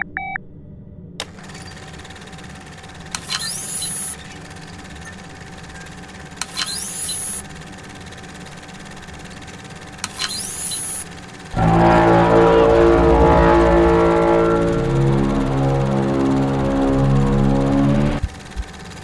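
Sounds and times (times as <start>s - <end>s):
low electronic hum: 2.0s - 19.0s
click: 10.0s - 11.0s.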